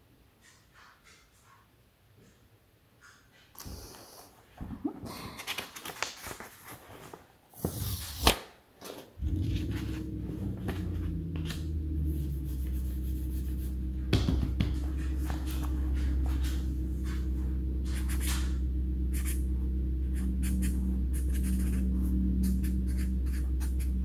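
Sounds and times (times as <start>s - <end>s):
paper cards rustling and flipping: 5.2s - 10.0s
steady low hum: 9.2s - 24.0s.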